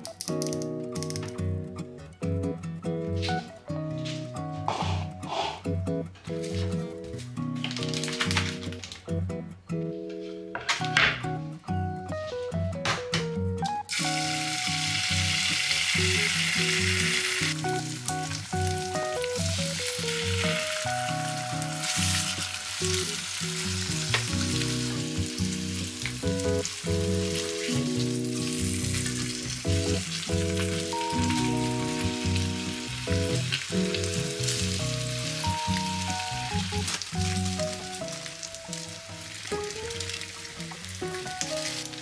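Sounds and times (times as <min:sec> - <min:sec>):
background music: 0:00.0 - 0:42.0
egg sizzling in frying pan: 0:13.9 - 0:42.0.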